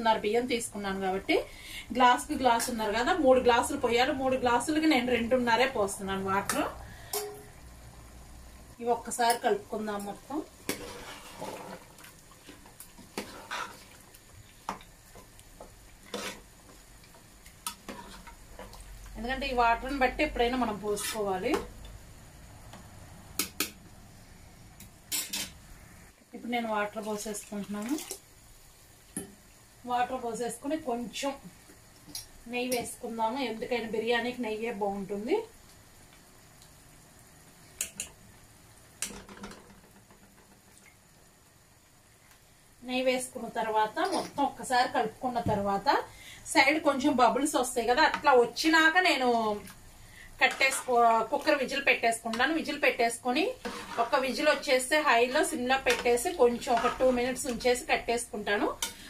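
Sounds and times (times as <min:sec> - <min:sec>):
faint steady hum: 0:00.0 - 0:59.0
spoon scraping and knocking pot: 0:14.7 - 0:16.4, 0:17.6 - 0:18.8, 0:50.4 - 0:51.0, 0:53.5 - 0:54.7, 0:55.8 - 0:57.6.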